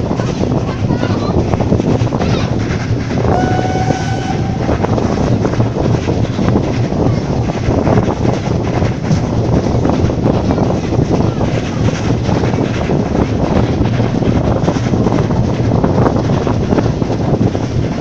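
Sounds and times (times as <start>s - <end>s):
wheels rumbling on rails: 0.0s - 18.0s
wind rushing: 0.0s - 18.0s
train whistle blast: 3.3s - 5.0s.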